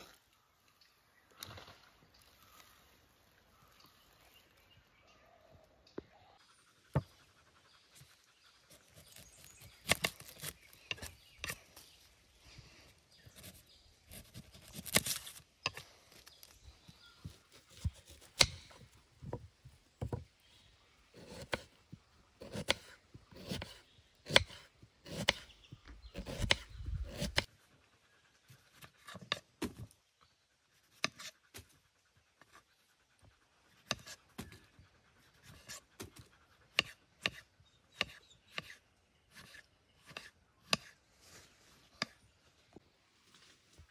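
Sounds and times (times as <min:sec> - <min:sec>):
knife cutting on wooden board: 0:22.4 - 0:27.5, 0:30.9 - 0:31.7, 0:33.8 - 0:34.8, 0:35.4 - 0:41.0.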